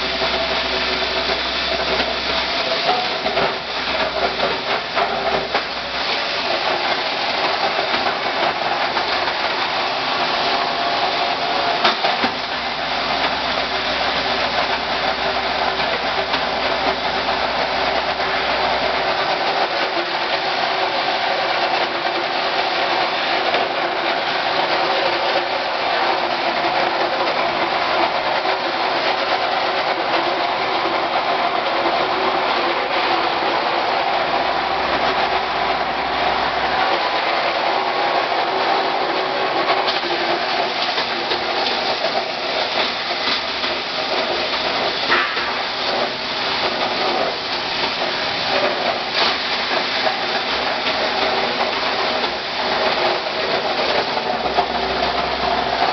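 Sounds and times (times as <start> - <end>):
plastic granulator running: 0.0 - 55.9.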